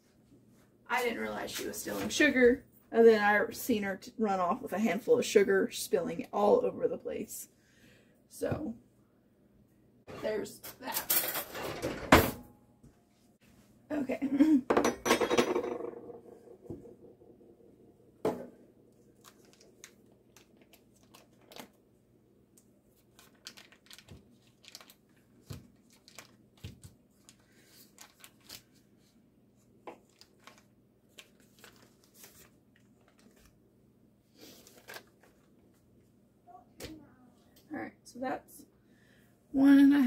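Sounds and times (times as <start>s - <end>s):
paper wrappers crinkling: 19.0s - 21.8s, 22.9s - 29.0s, 30.0s - 33.6s, 34.4s - 35.7s.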